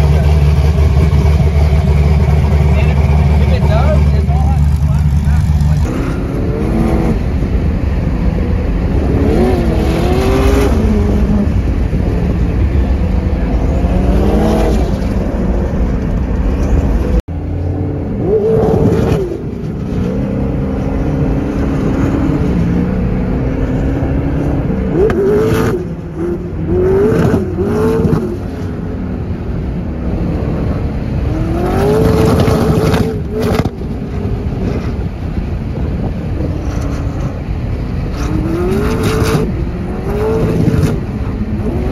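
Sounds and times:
car engine revving hard: 0:00.0 - 0:07.8, 0:08.6 - 0:12.0, 0:30.0 - 0:33.8, 0:38.1 - 0:41.9.

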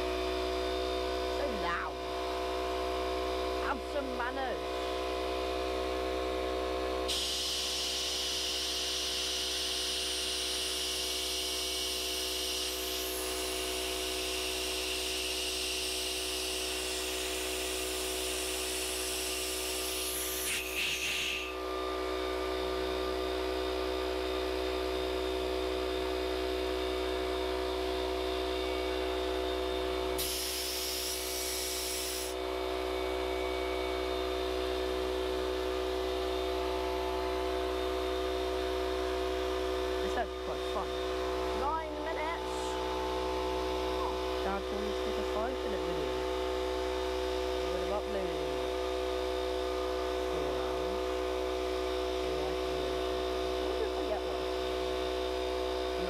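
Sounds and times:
air compressor motor humming: 0:00.0 - 0:56.0
compressed air hissing: 0:07.1 - 0:07.8, 0:20.1 - 0:21.5, 0:30.2 - 0:32.4.

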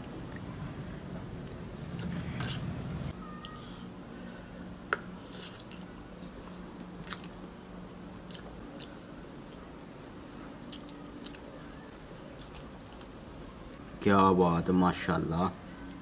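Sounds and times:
steady low hum: 0:00.0 - 0:16.0
man chewing: 0:05.2 - 0:09.8, 0:10.4 - 0:11.5, 0:12.2 - 0:13.3.

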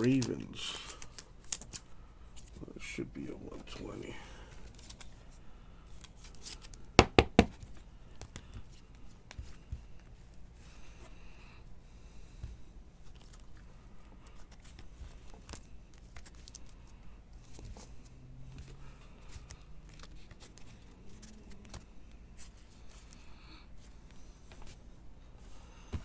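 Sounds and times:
trading cards clicking and rustling: 0:00.0 - 0:02.7, 0:03.3 - 0:05.3, 0:05.9 - 0:10.3, 0:13.0 - 0:23.3.

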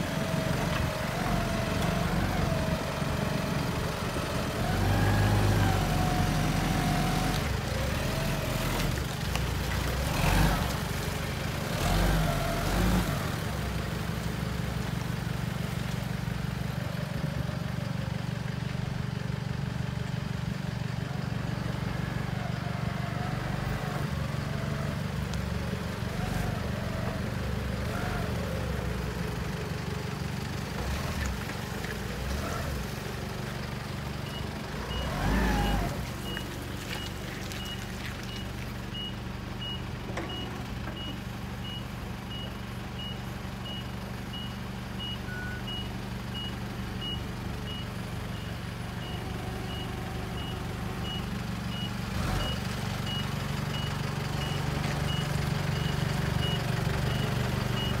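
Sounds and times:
forklift engine running: 0:00.0 - 0:58.0
reversing alarm beeps: 0:37.6 - 0:58.0.

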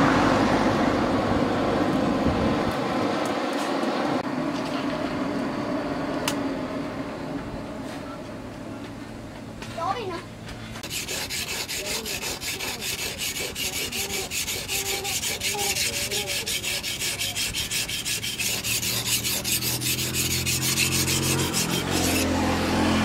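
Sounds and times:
steady engine hum: 0:00.0 - 0:23.0
knife honed on whetstone: 0:10.8 - 0:22.4.

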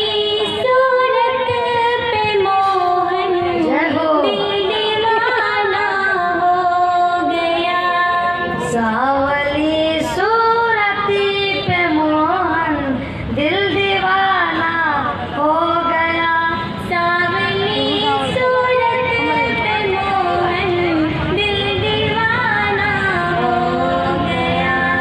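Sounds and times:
woman singing into a microphone: 0:00.0 - 0:25.0
singer breathing: 0:13.0 - 0:13.4.

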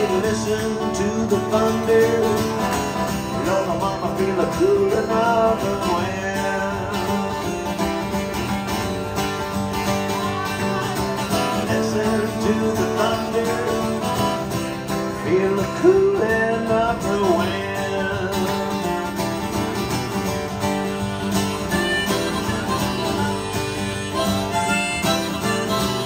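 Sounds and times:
country song on acoustic guitar: 0:00.0 - 0:26.0.

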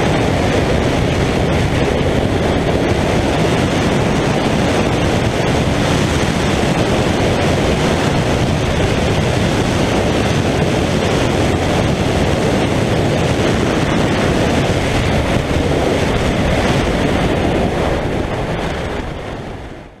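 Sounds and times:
wind rush on microphone: 0:00.0 - 0:20.0.

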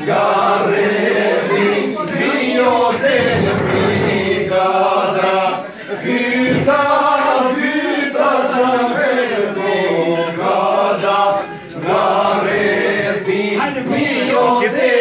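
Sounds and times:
men singing polyphonically: 0:00.0 - 0:15.0.

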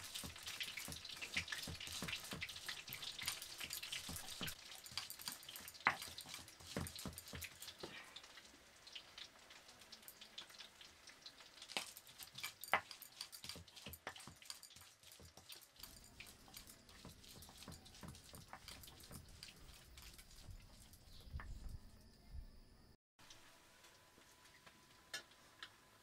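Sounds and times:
stone grinding on stone: 0:12.3 - 0:21.1.

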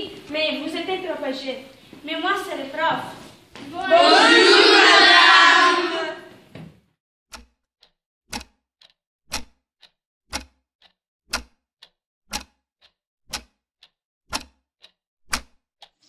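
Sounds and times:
clock ticking: 0:07.3 - 0:16.0.

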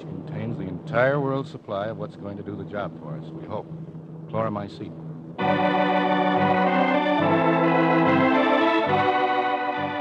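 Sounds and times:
organ chords: 0:02.3 - 0:10.0.

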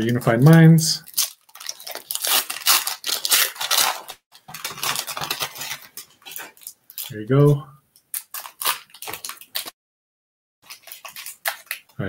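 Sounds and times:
foil wrapper crinkling and tearing: 0:00.2 - 0:07.2, 0:08.0 - 0:09.8, 0:10.6 - 0:12.0.

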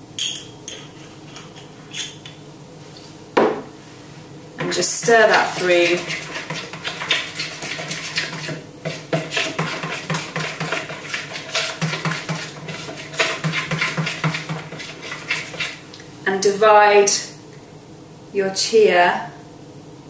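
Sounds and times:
spoon scraping plastic bowl: 0:04.6 - 0:15.8.

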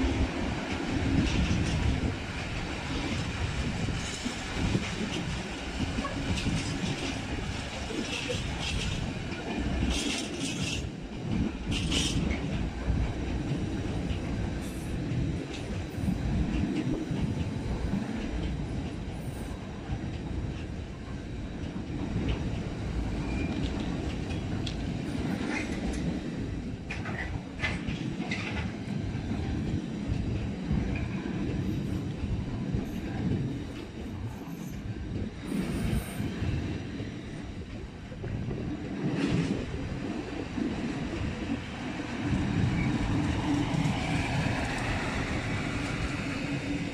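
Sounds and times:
train wheels rumbling on rails: 0:00.0 - 0:46.9
wheels clicking over rail joints: 0:00.1 - 0:21.0, 0:21.6 - 0:37.0.

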